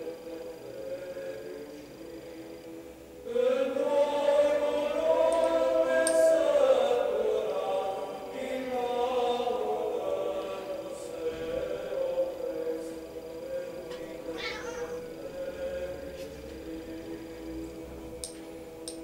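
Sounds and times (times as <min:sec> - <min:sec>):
voices singing a chant: 0:00.0 - 0:19.0.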